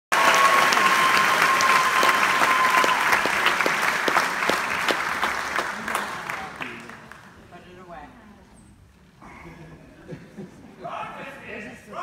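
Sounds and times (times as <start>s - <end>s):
audience applauding: 0.1s - 7.4s.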